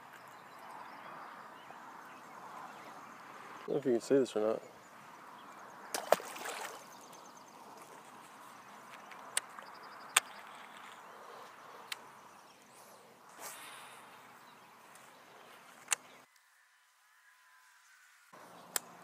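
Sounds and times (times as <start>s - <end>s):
faint outdoor background: 0.0s - 19.0s
fish splashing into water: 5.9s - 6.9s.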